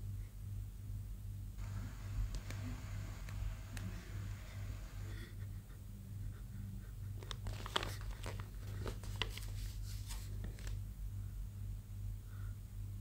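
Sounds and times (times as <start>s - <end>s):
steady low hum: 0.0s - 13.0s
paper pages crinkling: 7.2s - 10.8s.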